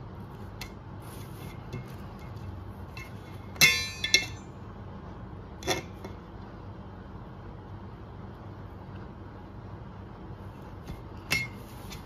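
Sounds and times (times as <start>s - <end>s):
knife knocking steel plate: 3.6s - 4.5s.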